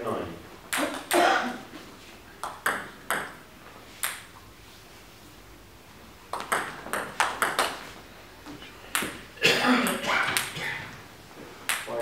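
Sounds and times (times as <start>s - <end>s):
table tennis ball bouncing: 0.7s - 1.2s, 2.4s - 3.4s, 4.0s - 4.3s, 6.3s - 7.9s, 8.9s - 11.0s, 11.6s - 12.0s.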